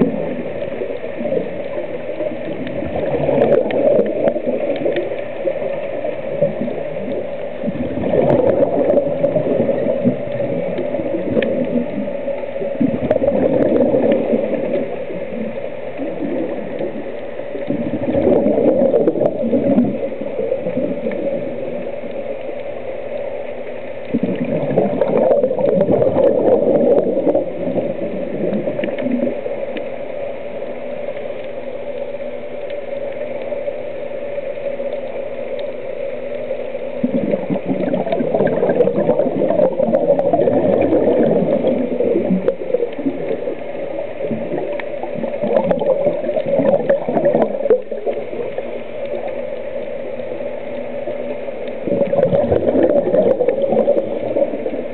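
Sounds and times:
steady hum: 0.0 - 54.9
underwater bubbles gurgling: 0.0 - 54.9.

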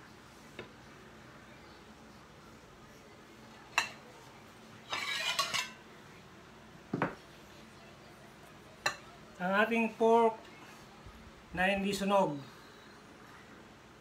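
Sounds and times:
metal utensils clinking on plates: 4.8 - 5.8.

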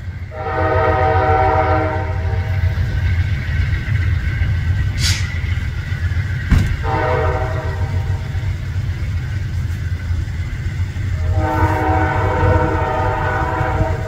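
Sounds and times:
low rumble of departing train: 0.0 - 14.0
train horn blasts: 0.3 - 2.7, 6.7 - 8.4, 11.1 - 14.0.

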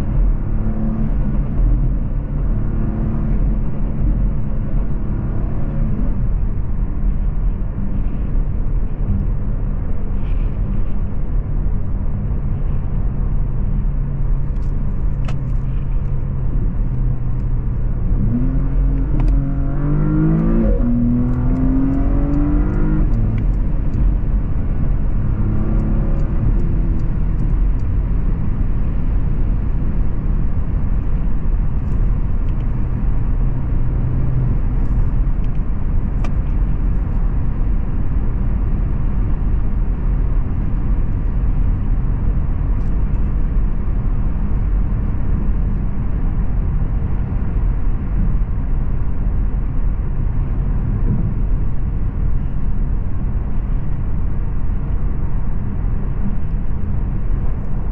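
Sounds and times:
road and tyre roar: 0.0 - 57.9
car engine accelerating: 11.9 - 57.9.

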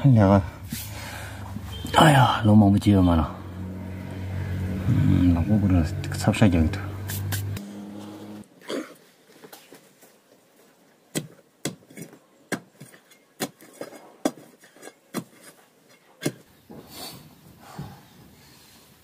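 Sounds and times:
digging bar striking stony ground: 11.1 - 16.5.

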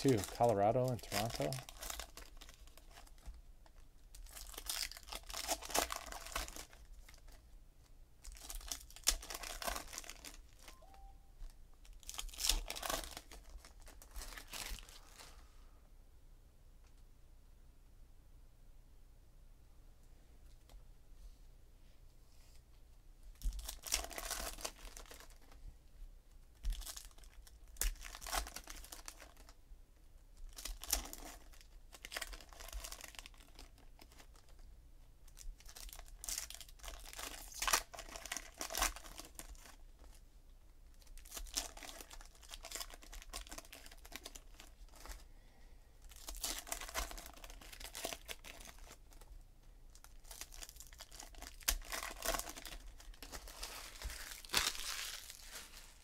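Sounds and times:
foil packs tearing and crinkling: 0.0 - 3.2, 4.2 - 7.2, 8.3 - 10.6, 12.0 - 15.2, 26.7 - 29.5, 30.5 - 34.5, 35.6 - 39.8, 41.1 - 45.2, 46.1 - 49.2, 50.0 - 56.0.

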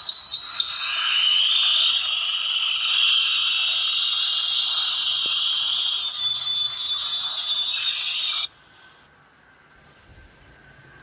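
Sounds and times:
finches chirping and chattering: 0.0 - 8.5.

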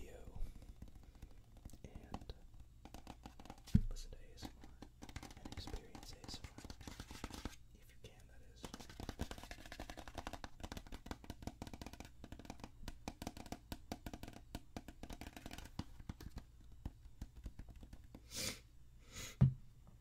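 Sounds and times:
fingernails tapping plastic bottle: 0.4 - 3.9, 8.6 - 18.2
dull thump: 19.4 - 19.6.

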